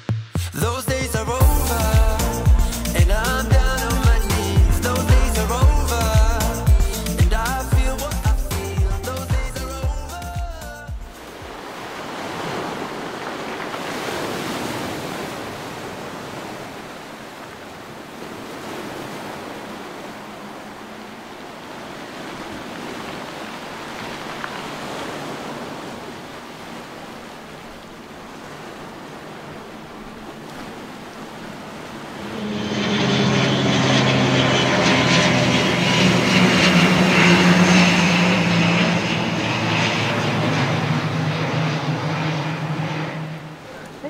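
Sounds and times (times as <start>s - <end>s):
propeller aircraft drone: 1.4s - 9.2s, 10.8s - 44.0s
surf washing over pebble shore: 11.1s - 32.5s.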